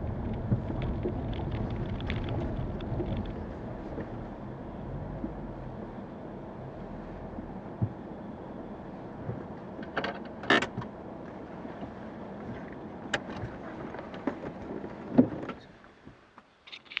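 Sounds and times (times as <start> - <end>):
car rumble inside cabin: 0.0 - 15.8.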